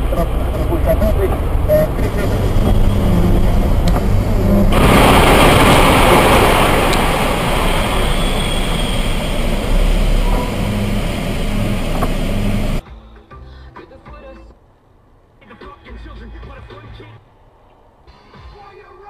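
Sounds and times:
car engine hum: 0.0s - 12.8s
truck crash: 1.4s - 12.5s.

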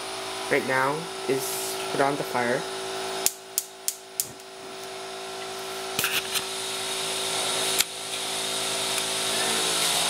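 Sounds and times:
gas burner hiss and hum: 0.0s - 10.0s.

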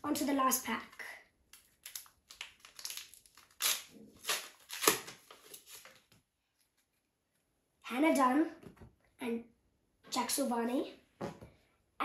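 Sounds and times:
wrapper tearing and crinkling: 1.5s - 6.0s.

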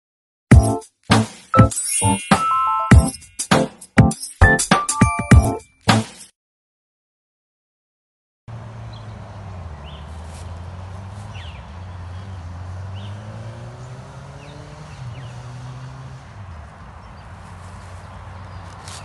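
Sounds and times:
vehicle engine humming: 8.5s - 19.0s.

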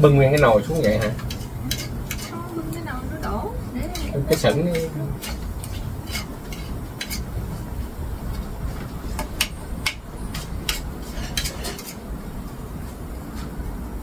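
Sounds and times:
fork clinking on a plate: 0.3s - 2.3s.

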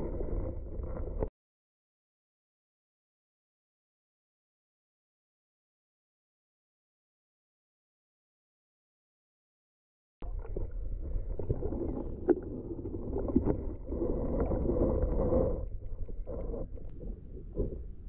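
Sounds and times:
underwater rumble of moving water: 0.0s - 1.3s, 10.2s - 18.0s.

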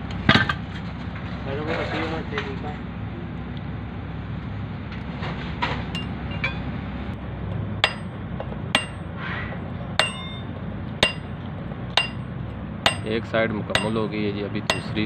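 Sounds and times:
ringing metal strikes: 7.8s - 9.1s, 10.0s - 11.4s, 12.0s - 15.0s
hammer on steel drift: 7.8s - 9.3s, 10.0s - 15.0s.

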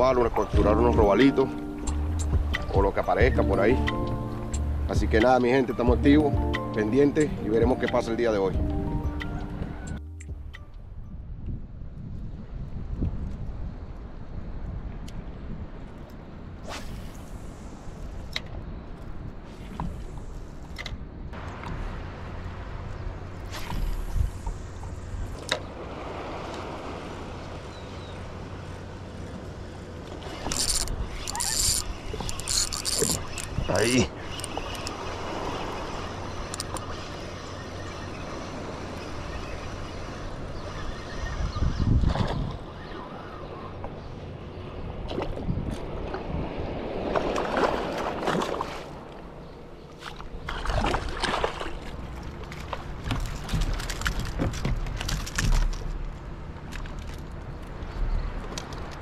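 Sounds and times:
water noise: 0.0s - 11.0s, 13.0s - 59.0s
wind: 0.0s - 59.0s
fishing reel cranking: 30.4s - 35.1s.

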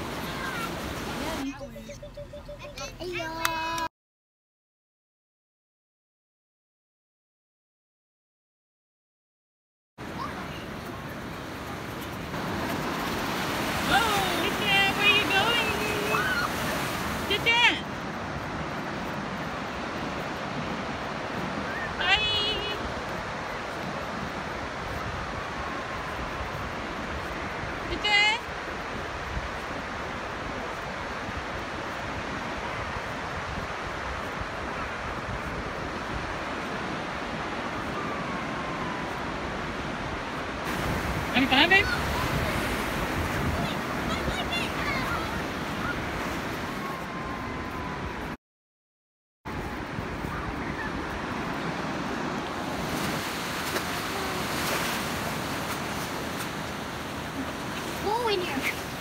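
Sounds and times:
small waves washing ashore: 0.0s - 1.6s, 10.0s - 48.4s, 49.5s - 59.0s
ocean surf rushing: 0.0s - 1.7s, 10.0s - 48.3s, 49.5s - 59.0s
wind buffeting microphone: 22.6s - 48.4s, 49.5s - 59.0s.

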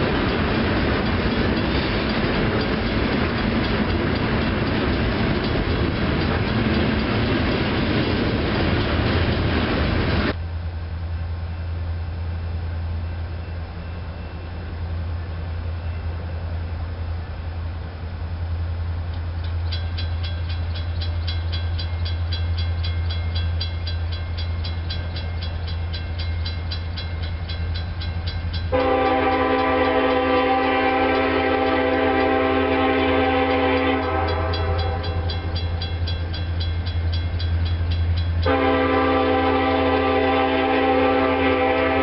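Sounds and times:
crossing bell dinging: 19.4s - 40.3s
locomotive air horn blasts: 28.7s - 35.4s, 38.4s - 42.0s.

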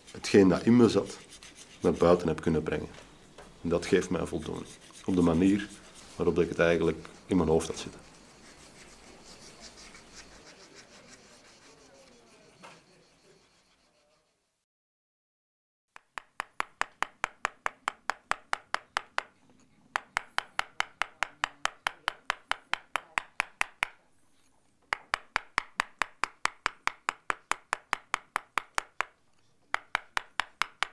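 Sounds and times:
hammer tapping chisel on stone: 16.0s - 19.4s, 20.0s - 24.0s, 24.9s - 30.9s.

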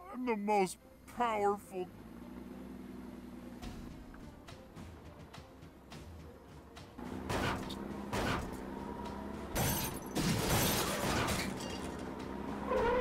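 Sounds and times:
glass shattering: 9.6s - 12.1s.

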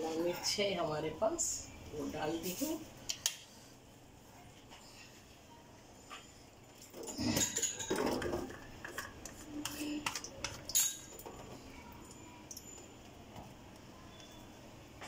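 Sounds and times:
utensils and dishes clattering: 6.1s - 13.0s.

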